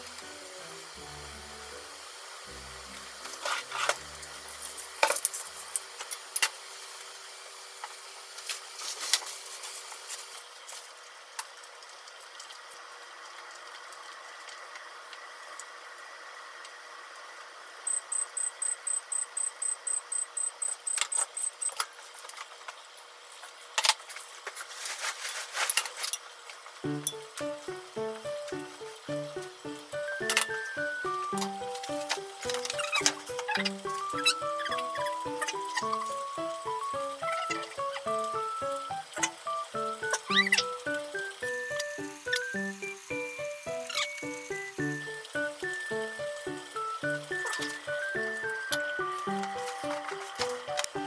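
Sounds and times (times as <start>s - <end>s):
soft steady hiss: 0.0s - 51.0s
high-pitched beeps: 17.9s - 20.8s.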